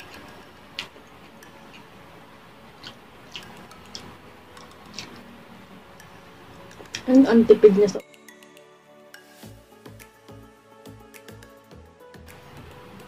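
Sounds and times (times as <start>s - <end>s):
chewing: 2.7s - 5.3s
mouth clicks and smacks: 2.8s - 5.3s.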